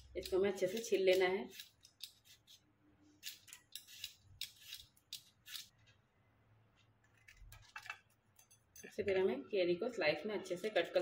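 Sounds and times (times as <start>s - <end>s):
vegetable peeler scraping skin: 0.0s - 2.6s, 3.2s - 5.7s.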